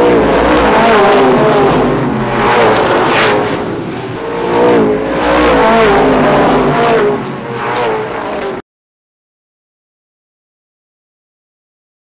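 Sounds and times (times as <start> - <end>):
race car engines revving: 0.0 - 8.6.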